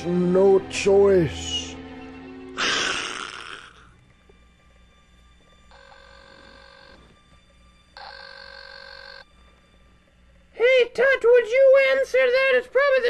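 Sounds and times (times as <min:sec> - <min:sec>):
electronic telephone ringing: 0:05.7 - 0:07.0, 0:08.0 - 0:09.2.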